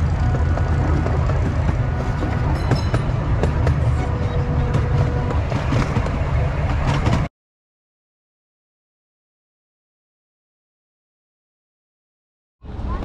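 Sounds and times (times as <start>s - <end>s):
miniature train rumbling on track: 0.0s - 7.3s
wheels clicking on rails: 0.0s - 7.3s.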